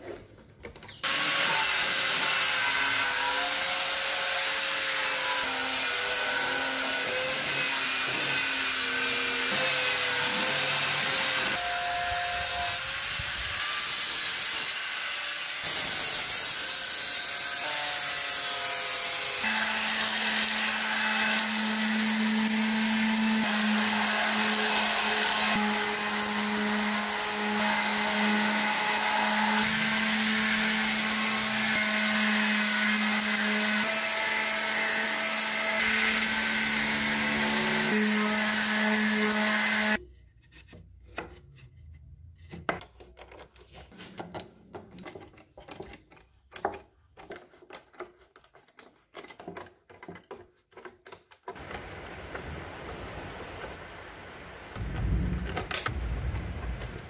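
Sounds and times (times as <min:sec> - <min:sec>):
power tool whining on wood: 0:01.0 - 0:40.0
low thump: 0:54.8 - 0:57.0.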